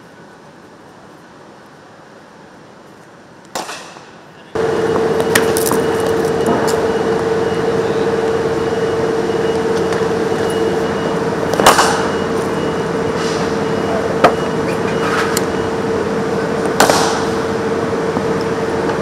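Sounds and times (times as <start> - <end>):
steady hum: 0.0 - 19.0
cricket bat striking ball: 16.8 - 17.3.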